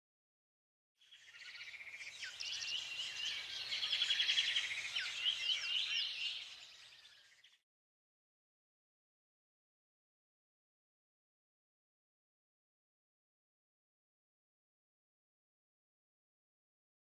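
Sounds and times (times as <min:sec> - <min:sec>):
birds chirping and trilling: 0:01.0 - 0:07.6.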